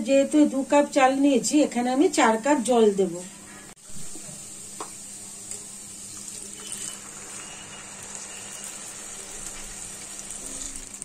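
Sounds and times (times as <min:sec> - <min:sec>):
water pouring into a pan: 0:06.0 - 0:11.0.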